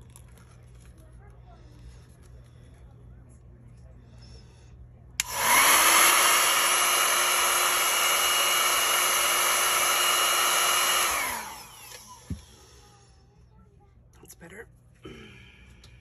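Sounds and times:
hair dryer switch click: 0:05.2 - 0:06.2
hair dryer blowing: 0:05.2 - 0:12.7.

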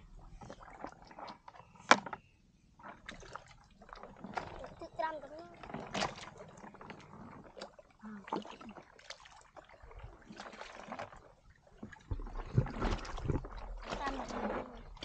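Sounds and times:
muddy water sloshing and splashing: 0:00.0 - 0:15.0
low rumbling and thumps: 0:11.8 - 0:15.0.

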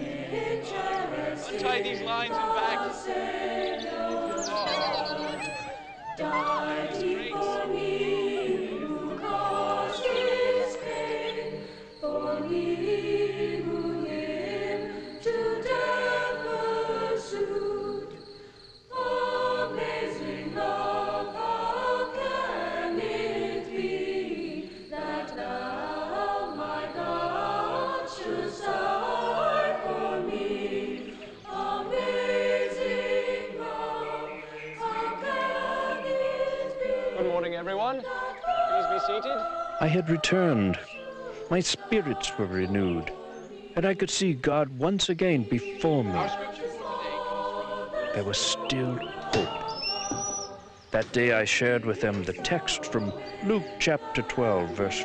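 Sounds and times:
choir singing a hymn: 0:00.0 - 0:55.0.

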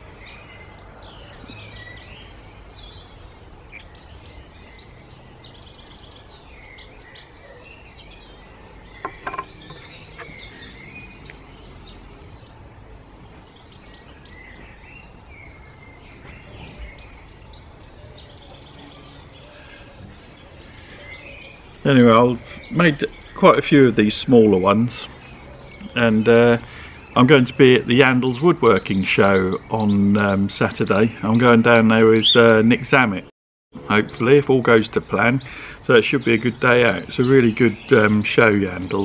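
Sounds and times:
low outdoor background rumble: 0:00.0 - 0:28.0
birds singing and chirping: 0:00.0 - 0:39.0.

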